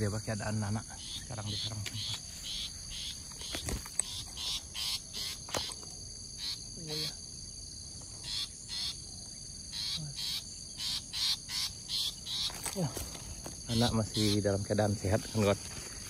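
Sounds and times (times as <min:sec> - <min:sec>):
insects chirring: 0:00.0 - 0:16.0
bird harsh scolding calls: 0:01.0 - 0:07.2, 0:08.1 - 0:14.7.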